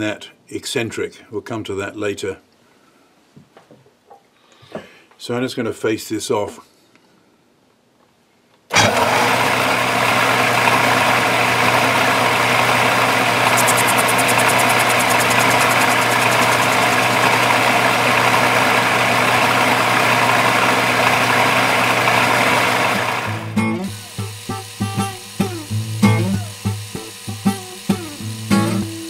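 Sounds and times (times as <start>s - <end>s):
metal lathe humming: 10.4s - 29.0s
rapid high ticking: 13.4s - 17.6s.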